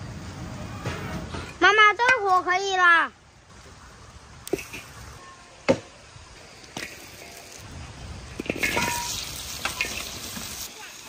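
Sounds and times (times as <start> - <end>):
vegetables sizzling in a wok: 3.5 - 11.0.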